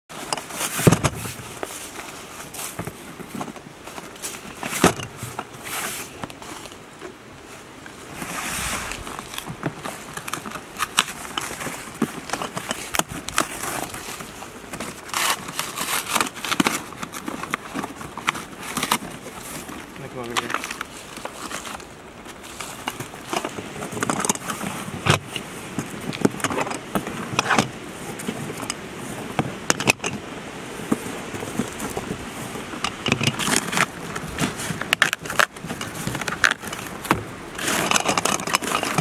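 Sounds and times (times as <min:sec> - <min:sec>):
cardboard boxes knocking and scraping: 0:00.1 - 0:06.4
cardboard and paper rustling: 0:00.1 - 0:39.0.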